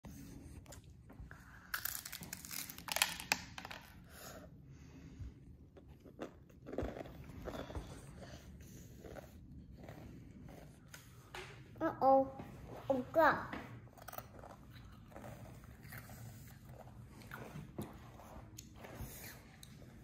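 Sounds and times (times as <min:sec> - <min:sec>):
child chewing crunchy snack: 0:00.4 - 0:04.5, 0:05.7 - 0:11.3, 0:13.8 - 0:20.0.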